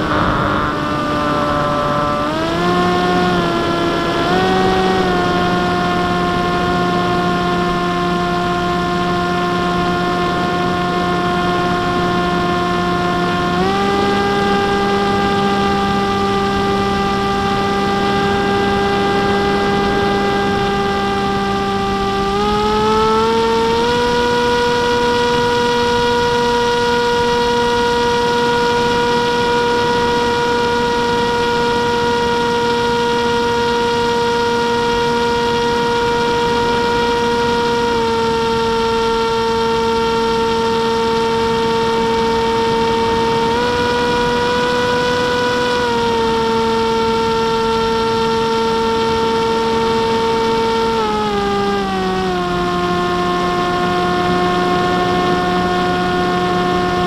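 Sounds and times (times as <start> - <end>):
wind rush: 0.0 - 7.3
electric motor and propeller buzzing: 0.0 - 57.0.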